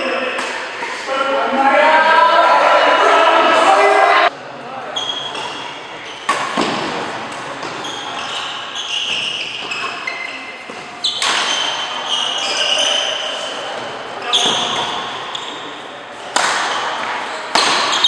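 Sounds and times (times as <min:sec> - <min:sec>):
shoes squeaking on court: 0:05.0 - 0:06.8, 0:07.5 - 0:15.8
rackets striking shuttlecock: 0:06.2 - 0:07.8, 0:10.7 - 0:11.8, 0:16.3 - 0:18.0.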